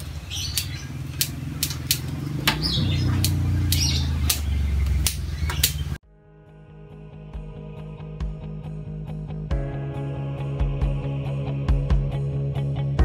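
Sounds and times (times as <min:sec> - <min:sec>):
pruning scissors snipping twigs: 0:00.0 - 0:06.0.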